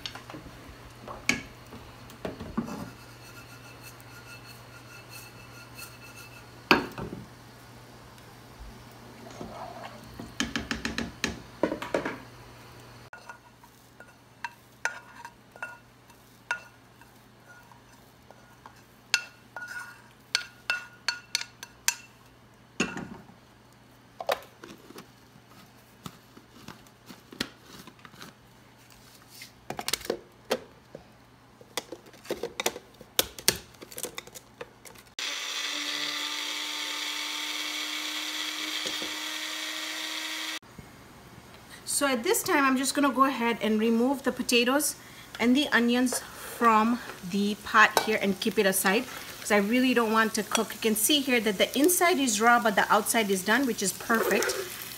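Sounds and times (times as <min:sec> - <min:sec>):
electric appliance motor humming: 0:35.2 - 0:40.6
metal kitchenware clinking: 0:54.1 - 0:54.8.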